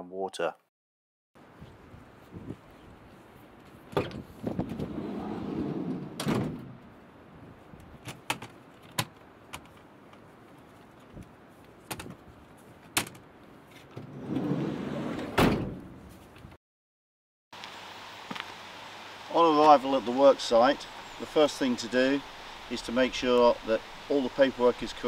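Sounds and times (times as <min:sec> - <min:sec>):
sliding van door rolling: 0:04.6 - 0:06.8, 0:14.0 - 0:16.0
door slamming: 0:05.8 - 0:06.8, 0:15.1 - 0:16.0.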